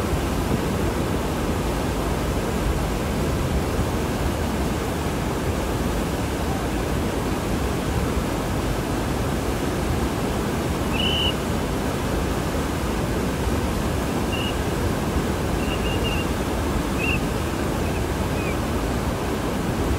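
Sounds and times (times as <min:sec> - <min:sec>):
water rushing over spillway: 0:00.0 - 0:19.9
short high chirp: 0:15.6 - 0:16.3.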